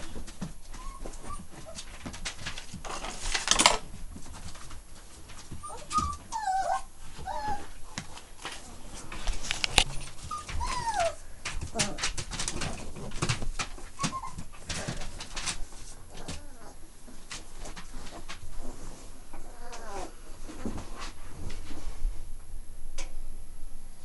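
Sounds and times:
puppy whining: 0.0s - 2.0s, 5.5s - 7.9s, 9.8s - 12.2s, 13.8s - 15.5s, 16.1s - 17.2s, 19.3s - 20.2s
rustling on bedding: 0.0s - 22.3s.

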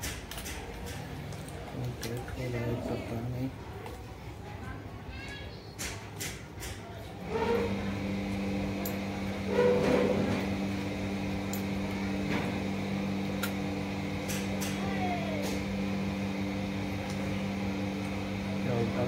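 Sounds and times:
electrical hum: 7.2s - 19.0s.

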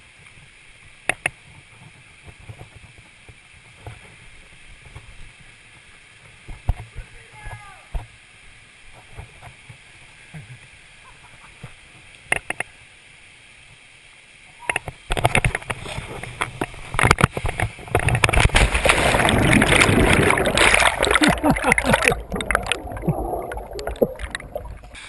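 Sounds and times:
churning water: 14.8s - 25.0s
rushing wind: 14.8s - 25.0s.

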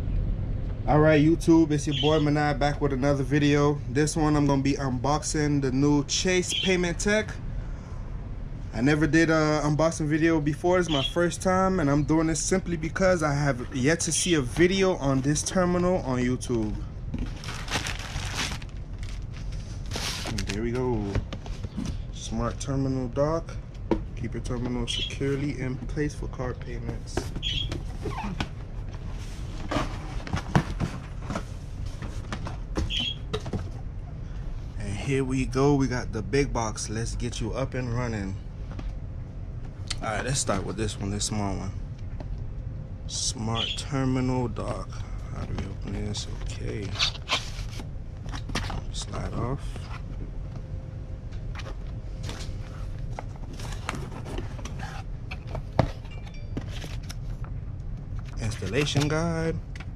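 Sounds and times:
hand rummaging in cardboard box: 17.2s - 20.8s
paper and cardboard rustling: 17.2s - 22.0s, 26.8s - 33.8s, 45.5s - 50.1s, 51.5s - 57.4s.

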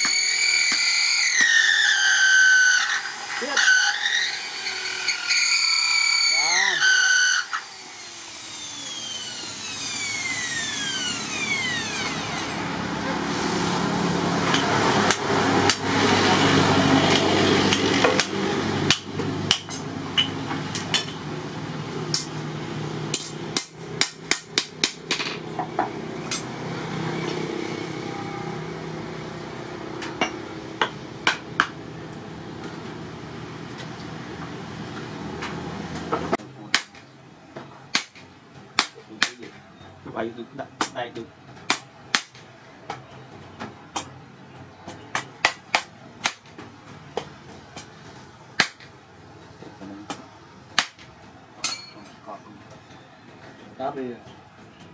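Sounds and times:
hammer striking steel blade on anvil: 51.6s - 52.2s.

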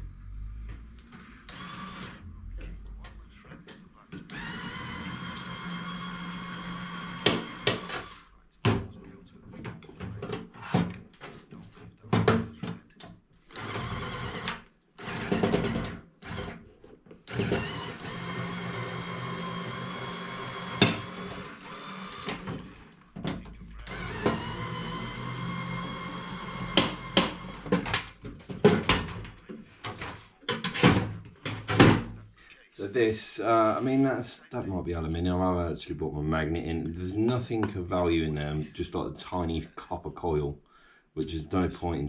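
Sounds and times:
power screwdriver whirring: 1.5s - 2.2s, 4.3s - 8.3s, 13.5s - 16.6s, 17.3s - 22.6s, 23.8s - 27.8s.

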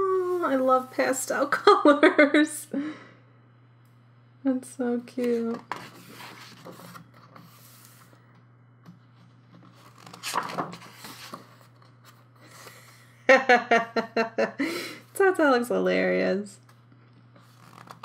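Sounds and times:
paper pages rustling: 5.3s - 8.1s, 9.5s - 12.7s, 17.4s - 18.0s
page flip: 9.6s - 12.2s, 17.4s - 18.0s.

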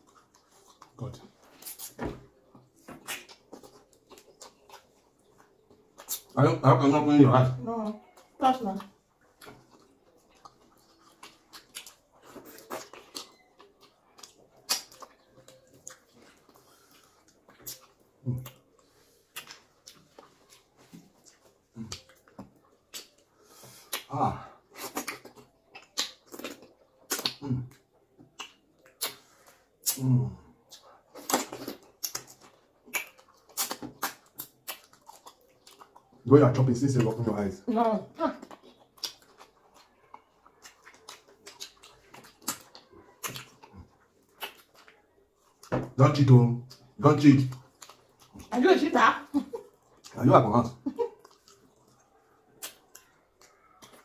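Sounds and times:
wet mouth clicks and smacks: 14.2s - 16.0s, 19.3s - 20.1s, 21.2s - 23.3s, 23.9s - 24.1s, 24.8s - 30.1s, 30.7s - 35.9s, 40.8s - 43.7s, 44.3s - 45.0s, 52.6s - 54.0s.

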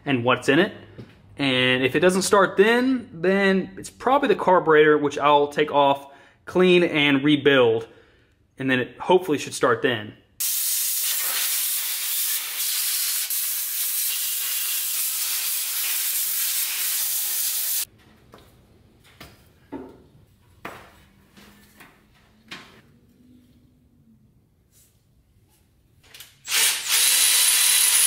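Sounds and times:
air blow gun hissing: 10.4s - 17.9s.

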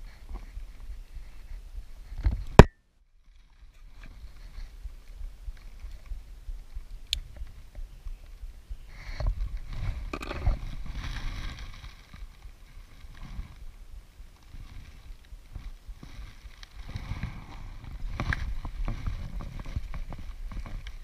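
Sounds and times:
low rumble: 4.7s - 20.8s.

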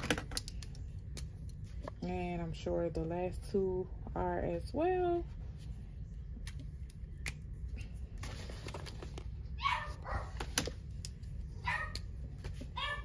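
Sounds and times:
dog barking: 9.6s - 10.4s, 11.6s - 12.0s, 12.8s - 13.0s.

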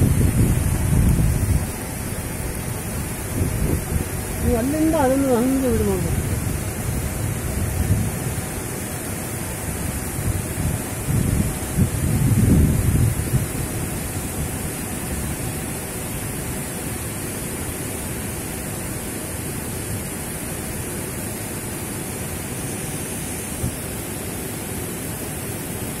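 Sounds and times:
steady rushing noise: 0.0s - 26.0s.

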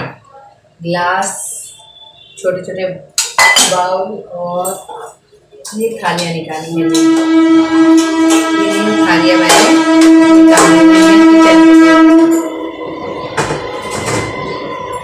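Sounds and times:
long held horn-like note: 6.9s - 15.0s.

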